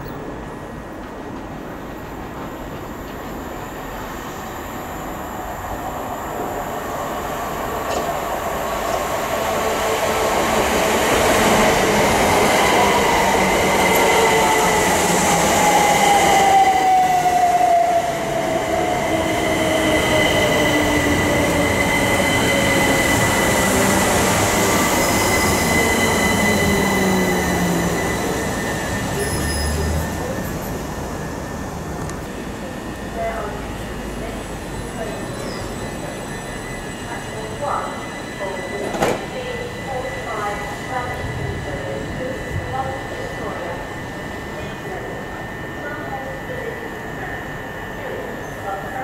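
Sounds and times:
electric train arriving: 0:00.0 - 0:49.0
falling train whine: 0:02.1 - 0:49.0
high squeal: 0:21.4 - 0:30.5, 0:34.6 - 0:41.2.

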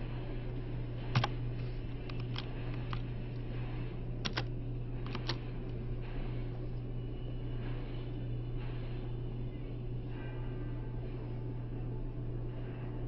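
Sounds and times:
low hum: 0:00.0 - 0:13.0
keyboard key clicks: 0:04.2 - 0:04.5.

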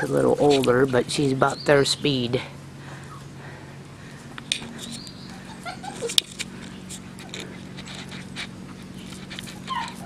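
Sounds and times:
puppy whimpers: 0:00.0 - 0:00.3, 0:05.3 - 0:06.3, 0:09.4 - 0:10.0
puppies scuffling on gravel and leaves: 0:00.0 - 0:02.0, 0:04.6 - 0:10.0.

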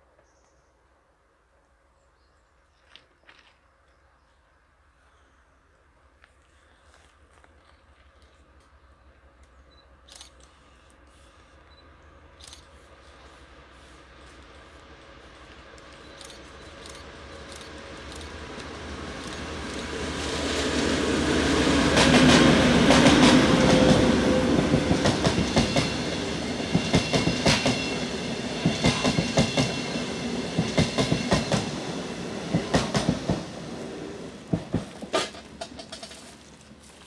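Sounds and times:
train rumbling past: 0:07.9 - 0:37.0
wheels clacking over rail joints: 0:34.5 - 0:36.5.

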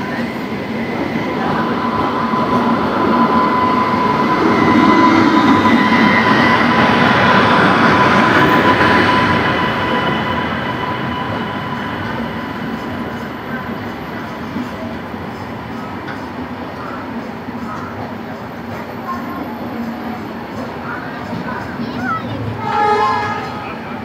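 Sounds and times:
train wheels rumbling: 0:00.0 - 0:24.0
high steady squeal: 0:00.2 - 0:14.6.

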